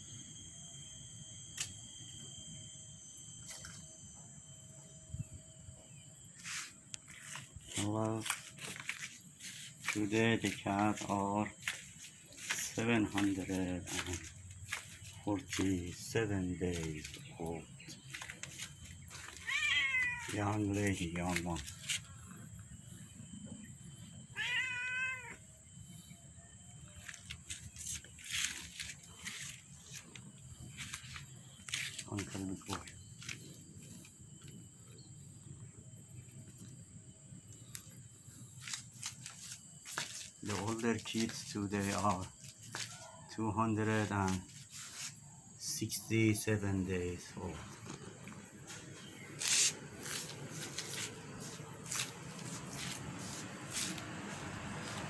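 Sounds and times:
high-pitched insect drone: 0:00.0 - 0:55.0
cat meowing: 0:19.4 - 0:20.4, 0:24.3 - 0:25.4.

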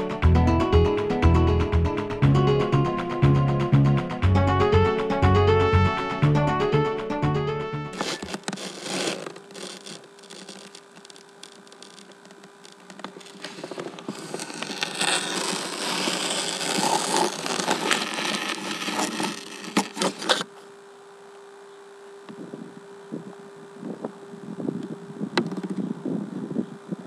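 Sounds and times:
microphone rustling and rubbing: 0:07.9 - 0:11.0, 0:12.1 - 0:20.5
faint steady hum: 0:07.9 - 0:27.0.

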